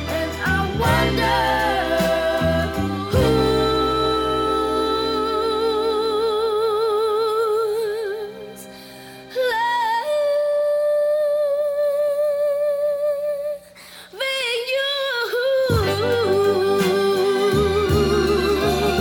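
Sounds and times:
soft accompaniment: 0.0 - 11.2, 15.6 - 19.0
woman singing slow song: 0.0 - 19.0.

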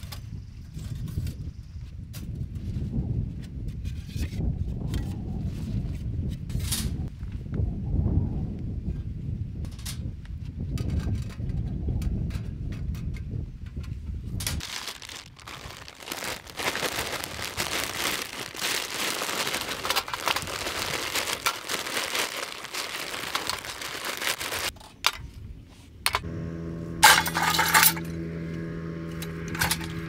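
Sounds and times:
plastic bag crinkling: 14.6 - 24.7
steady low hum: 26.2 - 30.0
charcoal clinking against metal: 27.0 - 28.2, 29.2 - 30.0.

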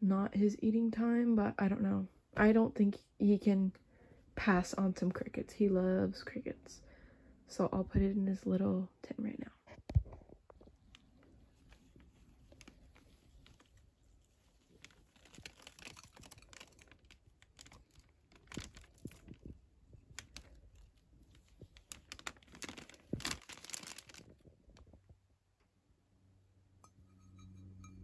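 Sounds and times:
plastic bag crinkling: 10.6 - 25.0.

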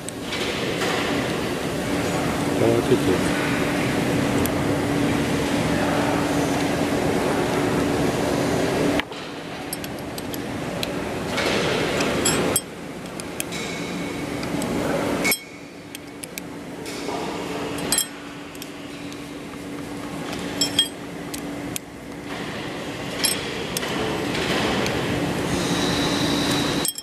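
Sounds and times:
steady low hum: 0.0 - 27.0
metallic clinks of steel tool: 20.6 - 21.0.

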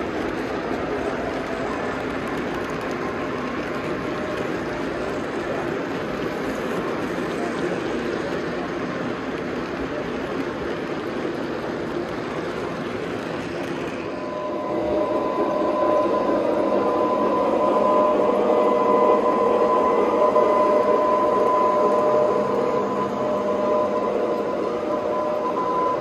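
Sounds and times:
model train wheels rolling: 0.0 - 26.0
multi-pitched whine: 13.7 - 26.0.

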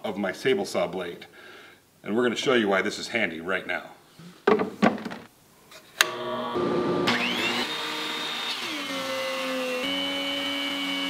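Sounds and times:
planer whine spinning up: 6.0 - 11.0.

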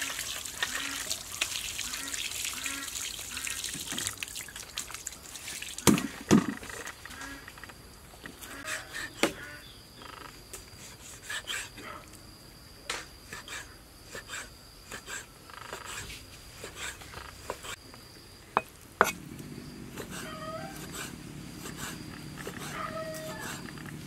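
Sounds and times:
wavering animal call: 20.1 - 21.1, 22.4 - 23.9.

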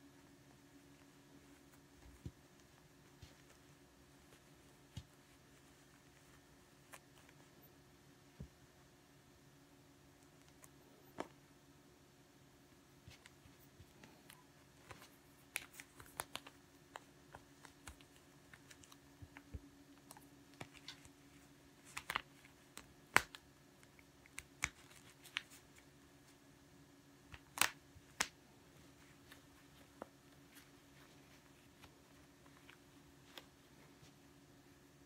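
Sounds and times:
fingers rustling fabric: 0.0 - 7.7
faint low hum: 0.0 - 35.0.

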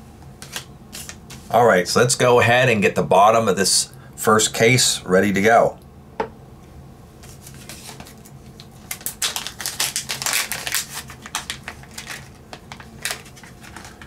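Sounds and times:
plastic packaging crinkling: 7.3 - 14.0.

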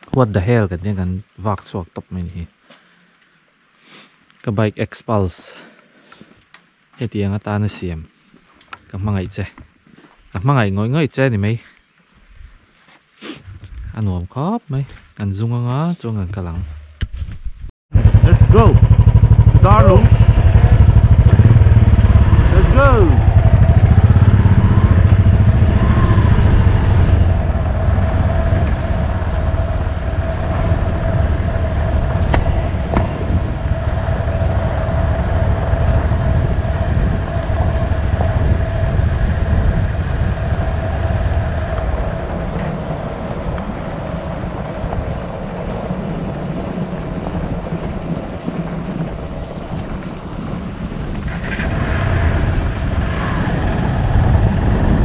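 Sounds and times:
wind noise on microphone: 13.4 - 14.1, 16.5 - 55.0
motorcycle engine running: 17.9 - 55.0.

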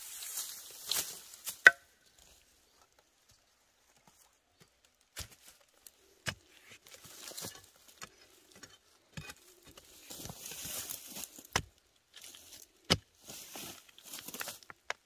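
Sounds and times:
scraping earth and dry leaves: 0.0 - 15.0
machete chopping into soil: 1.4 - 1.9.

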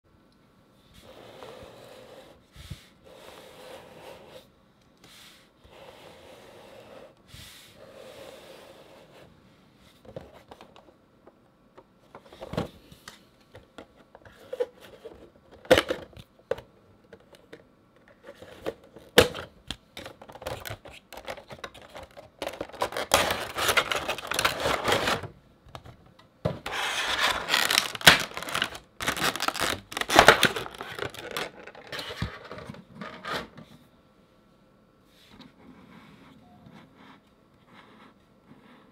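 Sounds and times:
packaging crinkling and scraping: 20.0 - 25.9, 26.6 - 33.5.

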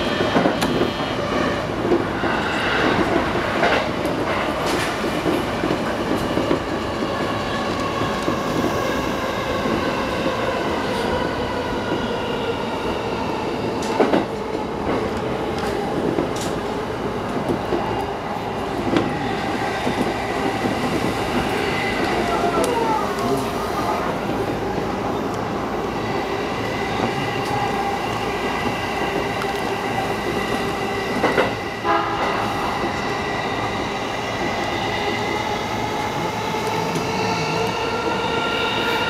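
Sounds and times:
train wheels rumbling on rail: 0.0 - 39.0
rail joint clicks: 1.8 - 8.8, 13.7 - 18.1, 26.6 - 33.2.

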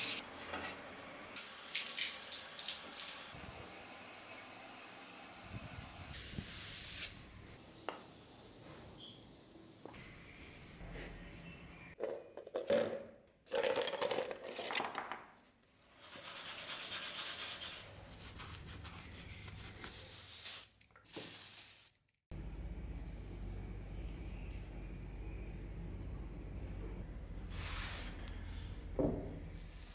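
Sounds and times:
low steady hum: 22.3 - 27.4.

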